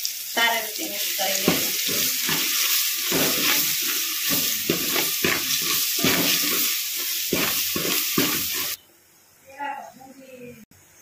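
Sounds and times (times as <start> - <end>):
hot oil sizzling in a pot: 0.0 - 8.8
ladle knocking and scraping pot: 1.4 - 8.8.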